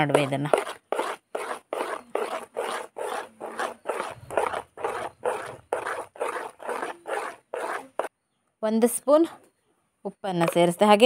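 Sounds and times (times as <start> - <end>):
metal spoon stirring batter in bowl: 0.0 - 8.1, 10.4 - 11.0.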